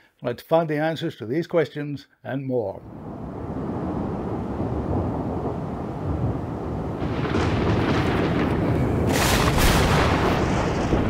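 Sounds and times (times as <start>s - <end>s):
thunder rumbling and cracking: 2.8s - 11.0s.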